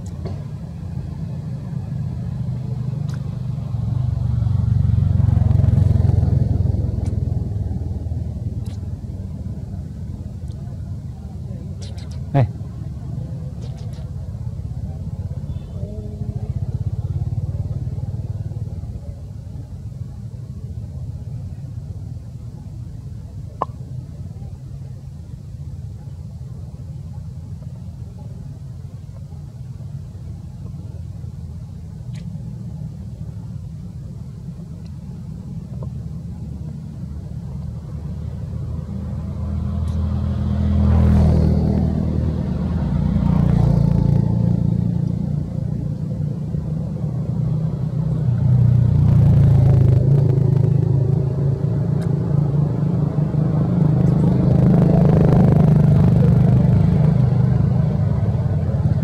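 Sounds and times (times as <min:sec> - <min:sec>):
vehicles passing: 0:00.0 - 0:59.0.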